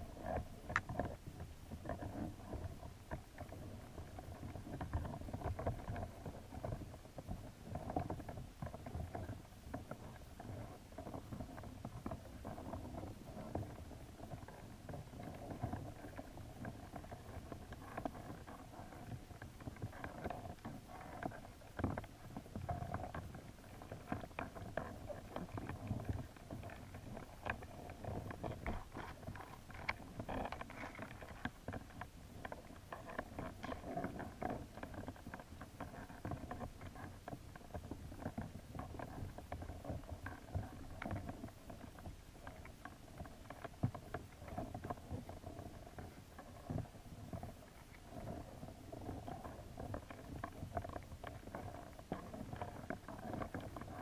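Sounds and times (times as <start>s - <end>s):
underwater rumble: 0.0s - 54.0s
small clicks and taps: 0.3s - 1.2s.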